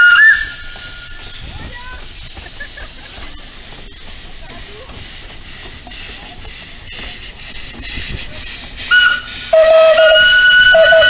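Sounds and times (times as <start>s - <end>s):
steam whistle: 0.0s - 1.2s, 8.9s - 11.0s
steam locomotive chuffing: 0.0s - 11.0s.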